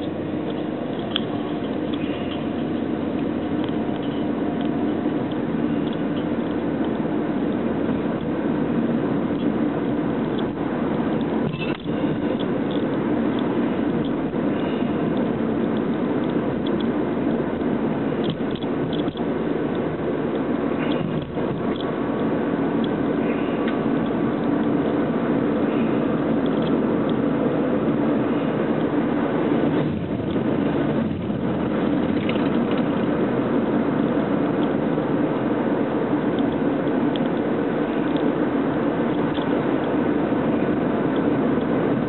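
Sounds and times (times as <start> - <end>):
car engine and road noise: 0.0 - 42.0.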